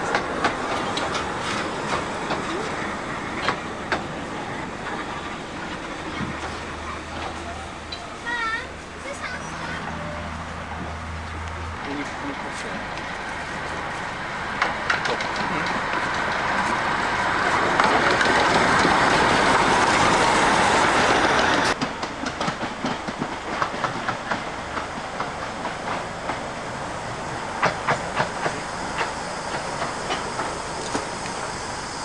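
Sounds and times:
wheels clicking over rail joints: 0:00.0 - 0:09.4, 0:11.3 - 0:26.5, 0:27.6 - 0:31.6
steam locomotive passing: 0:00.0 - 0:32.0.

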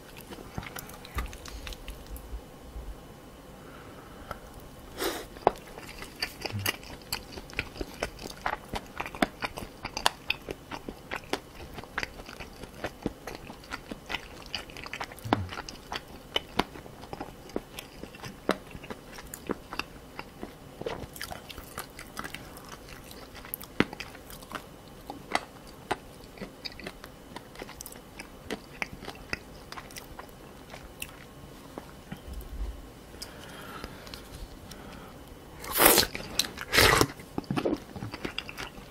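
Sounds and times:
crunchy chewing: 0:00.0 - 0:02.2, 0:04.3 - 0:32.5, 0:35.6 - 0:38.9
wet mouth sounds: 0:05.0 - 0:10.1, 0:14.9 - 0:16.0, 0:35.6 - 0:38.8.

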